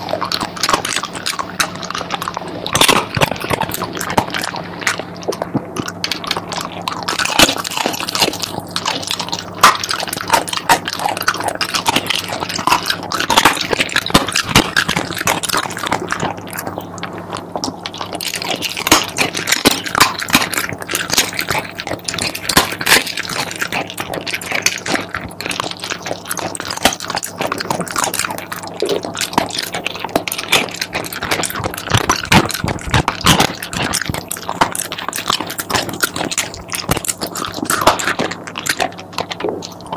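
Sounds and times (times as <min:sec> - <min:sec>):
dog chewing bone: 0:00.0 - 0:39.9.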